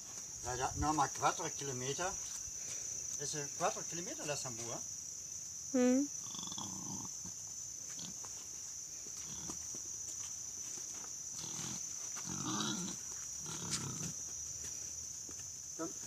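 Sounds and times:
high-pitched insect buzz: 0:01.5 - 0:16.0
boar grunting: 0:11.4 - 0:14.2.

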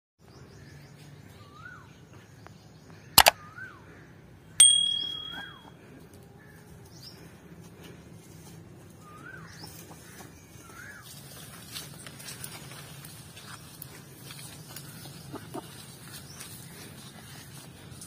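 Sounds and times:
bell ding: 0:04.6 - 0:05.7.

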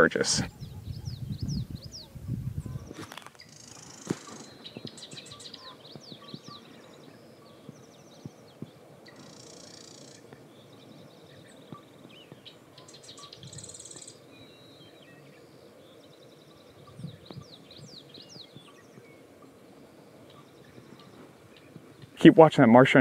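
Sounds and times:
wren buzzy rattling trills: 0:02.9 - 0:22.4
bird descending calls: 0:03.0 - 0:07.7, 0:09.0 - 0:14.9.

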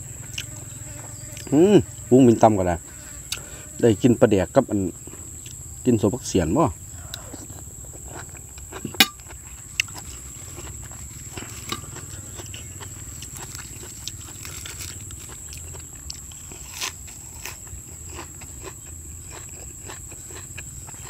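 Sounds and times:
biting and chewing: 0:00.0 - 0:01.6, 0:07.0 - 0:21.0
herbs being torn by hand: 0:13.2 - 0:18.8.

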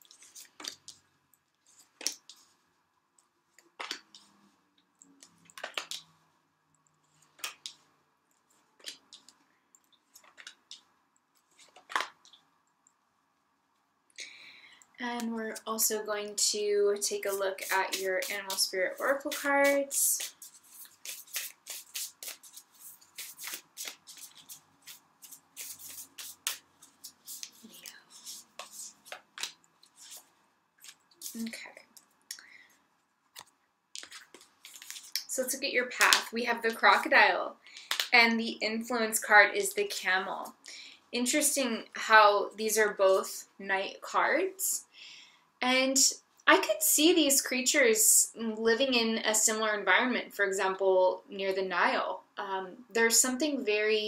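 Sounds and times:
cards shuffling: 0:10.1 - 0:10.8, 0:11.4 - 0:12.2, 0:17.1 - 0:31.5, 0:33.3 - 0:35.3.

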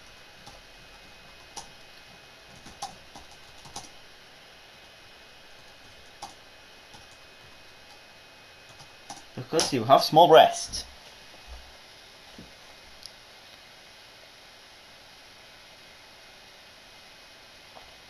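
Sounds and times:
typing on computer keyboard: 0:01.4 - 0:01.8, 0:02.5 - 0:04.0, 0:06.0 - 0:07.2, 0:08.7 - 0:09.3.

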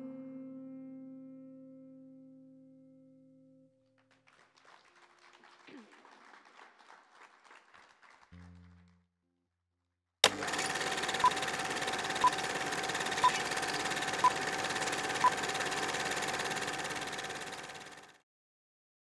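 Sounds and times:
projector click: 0:10.2 - 0:18.0
film projector hum and clatter: 0:10.2 - 0:18.2.

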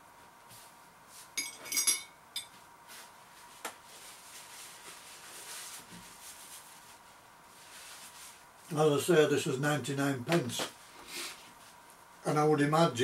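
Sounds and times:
metal fork clinking against bowl: 0:01.4 - 0:02.5
paper tissue rustling: 0:02.8 - 0:09.1.

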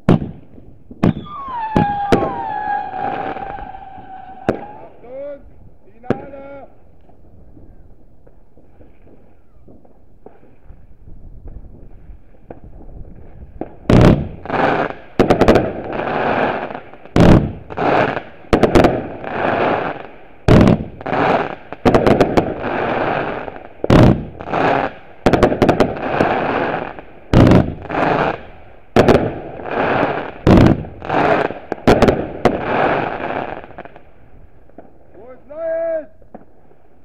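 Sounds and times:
faint distant firework pops: 0:00.0 - 0:02.5, 0:07.0 - 0:15.8, 0:34.7 - 0:35.3, 0:36.2 - 0:36.9
loud firework bangs: 0:00.0 - 0:05.1, 0:07.1 - 0:34.0, 0:36.2 - 0:36.8
hissing crackle of fireworks: 0:00.0 - 0:37.0.

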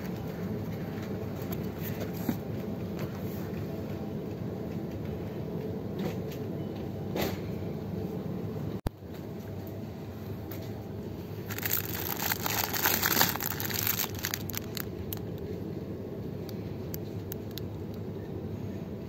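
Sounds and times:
steady low hum: 0:00.0 - 0:19.0
plastic wrapper crinkling: 0:11.4 - 0:15.4.

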